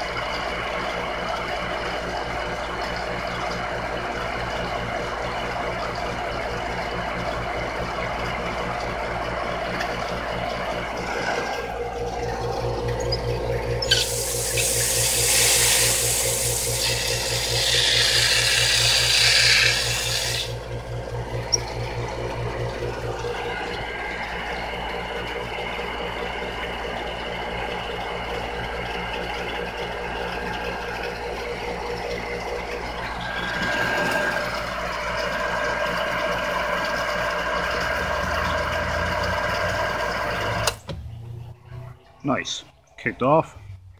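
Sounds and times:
pump motor humming: 0.0 - 43.9
water hissing from pipes: 7.7 - 26.2, 27.8 - 40.9.

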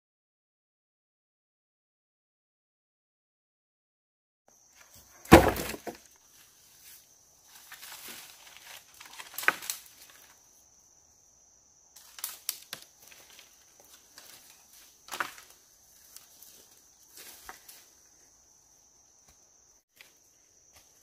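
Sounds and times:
rustling and crinkling: 4.8 - 10.4.

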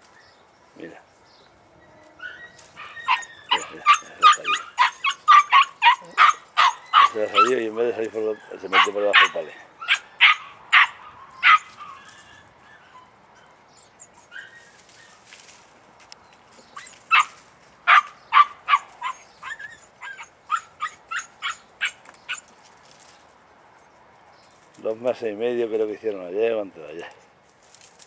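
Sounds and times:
puppy yipping: 2.0 - 7.6, 8.3 - 15.2, 16.7 - 22.5.

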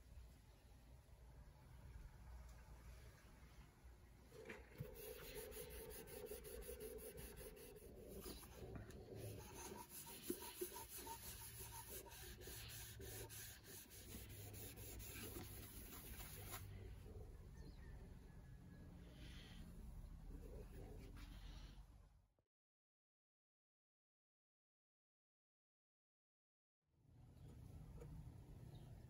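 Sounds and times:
cloth rubbing on wood: 4.8 - 16.7.

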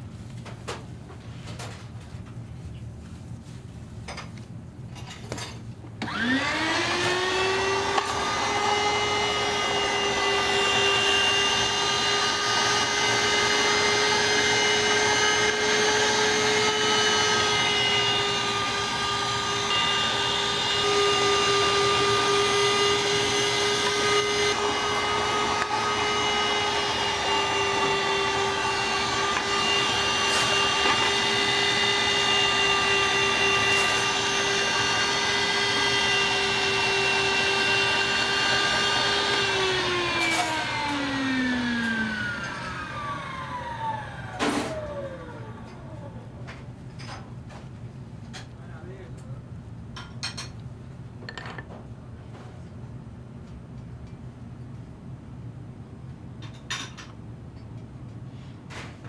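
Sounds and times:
kitchen machine motor whirring: 6.0 - 46.6.

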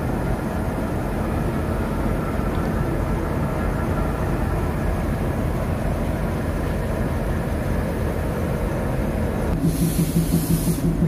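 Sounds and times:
diesel locomotive engine idling: 0.0 - 11.0
loud hiss: 9.5 - 11.0.

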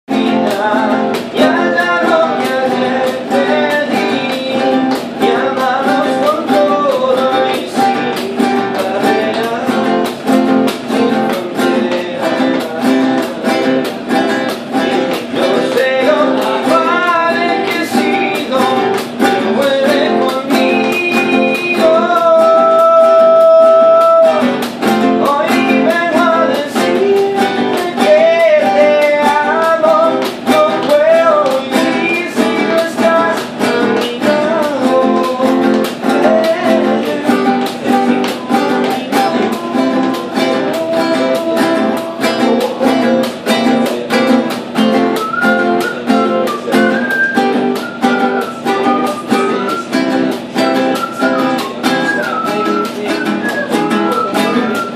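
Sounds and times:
acoustic guitar strumming: 0.0 - 54.9
man singing: 0.1 - 54.9.

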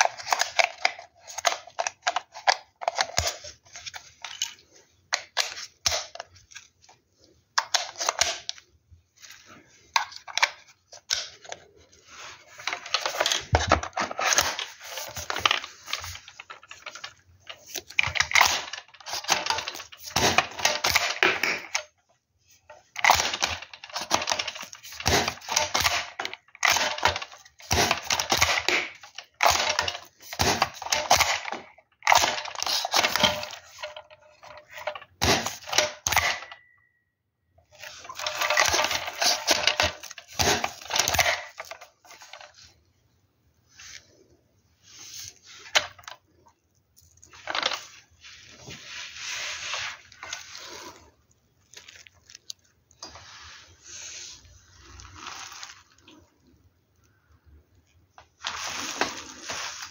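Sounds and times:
plastic clicks and rattles: 0.0 - 8.7, 9.9 - 11.8, 12.5 - 22.1, 22.7 - 36.9, 37.6 - 42.7
disposable gloves rustling: 43.6 - 56.5, 58.1 - 59.9.

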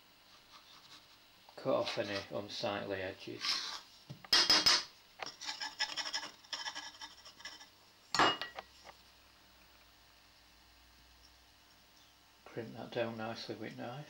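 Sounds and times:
scraping on a pastry board: 3.4 - 3.9, 5.2 - 7.7.

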